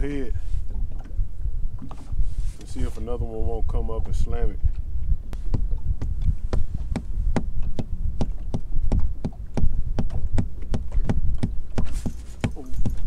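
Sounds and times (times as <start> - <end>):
foot tapping on boat floor: 4.7 - 13.0.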